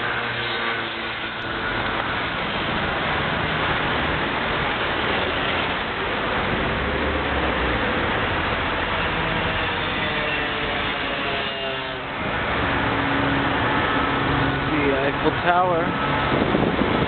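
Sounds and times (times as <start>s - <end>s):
city road traffic: 0.0s - 17.0s.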